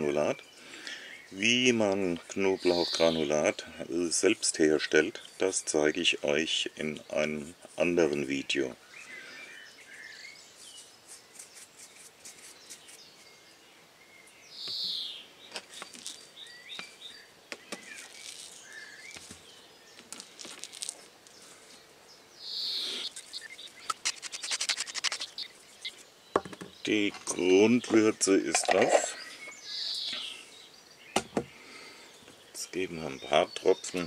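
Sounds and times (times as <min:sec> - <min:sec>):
small birds chirping: 0:00.0 - 0:34.0
seasoning sprinkling on meat: 0:23.3 - 0:25.5
pepper mill grinding: 0:23.9 - 0:25.5.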